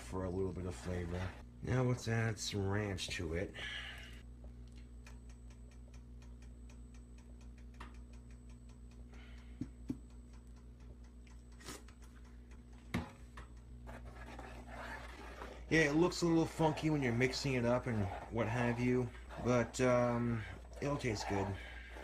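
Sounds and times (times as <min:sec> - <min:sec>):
faint steady hum: 0:00.0 - 0:22.0
fast even ticking: 0:05.0 - 0:12.8, 0:15.6 - 0:22.0.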